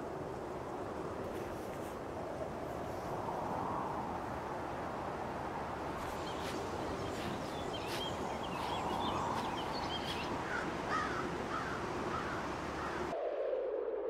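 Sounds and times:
steady hiss: 0.0s - 13.1s
birds chirping: 5.6s - 13.1s
low swooping bird calls: 5.7s - 13.2s.

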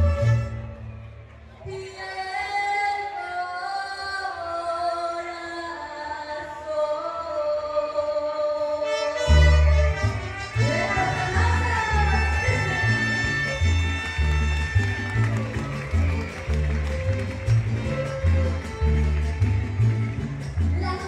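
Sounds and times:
band bass and rhythm: 9.4s - 21.0s.

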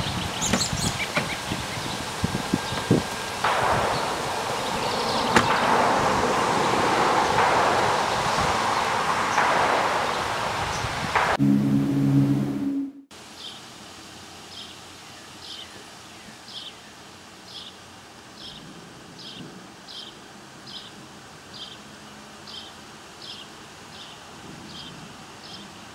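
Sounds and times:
quiet outdoor ambience: 0.0s - 25.9s
low chord: 11.2s - 13.1s.

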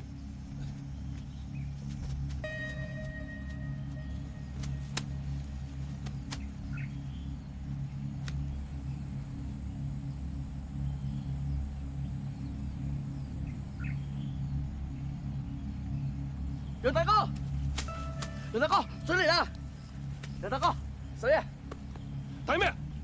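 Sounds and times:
high insect buzz: 0.0s - 23.0s
bird chirps: 0.2s - 8.9s.

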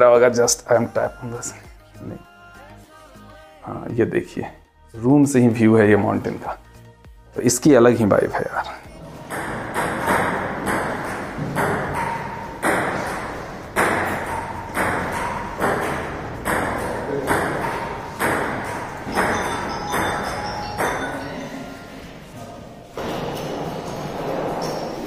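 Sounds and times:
table tennis ball clacking: 9.2s - 21.3s.

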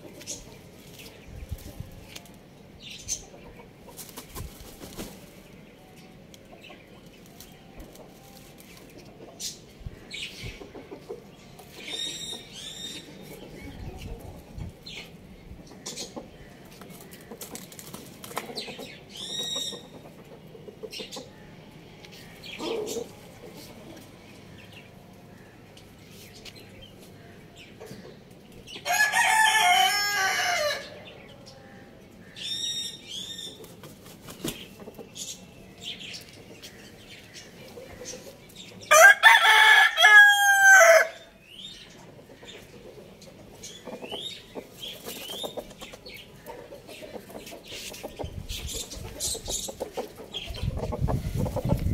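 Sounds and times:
chicken clucking: 10.3s - 15.1s, 15.7s - 21.6s, 22.6s - 24.2s, 33.5s - 38.8s, 41.9s - 51.9s
rooster crowing: 28.9s - 30.9s, 38.9s - 41.3s.

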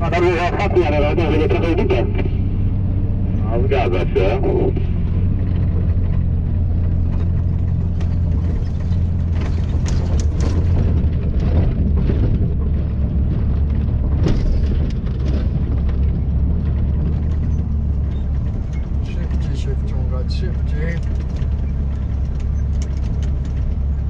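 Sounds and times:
diesel engine running: 0.0s - 24.0s
cab knocks and rattles: 5.2s - 19.9s, 20.5s - 24.0s.

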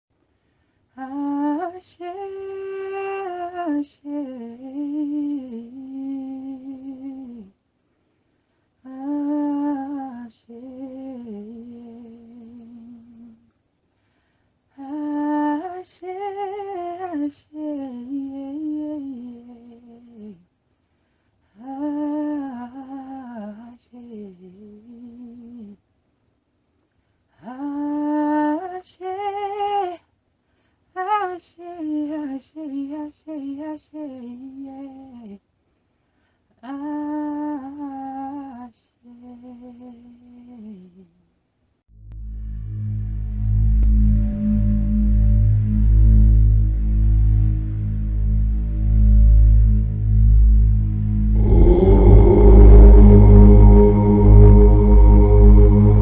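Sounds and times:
woman singing wordless melody: 0.9s - 7.6s, 8.8s - 13.5s, 14.7s - 20.5s, 21.5s - 25.8s, 27.4s - 30.1s, 31.0s - 35.4s, 36.6s - 41.2s, 51.3s - 56.0s.

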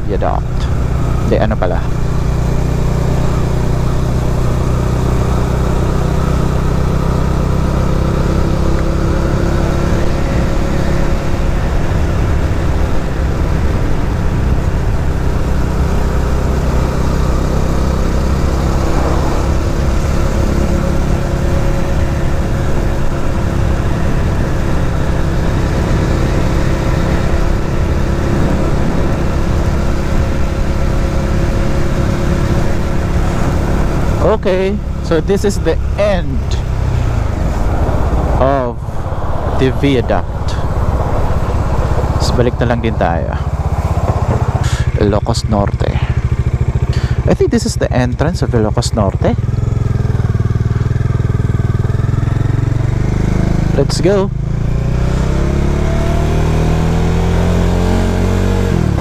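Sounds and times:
motorcycle engine cruising: 0.0s - 59.0s
wind rumble on microphone: 18.2s - 21.7s, 23.9s - 31.7s.

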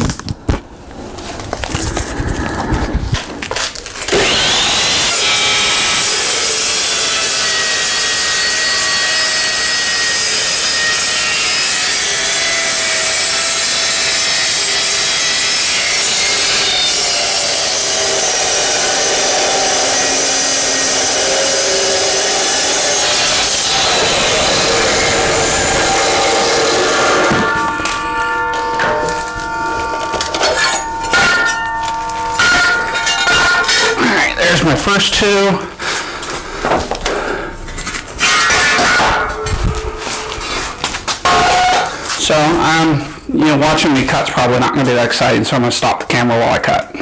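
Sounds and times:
chop saw cutting steel: 4.0s - 34.8s, 37.0s - 39.5s, 40.1s - 42.8s.

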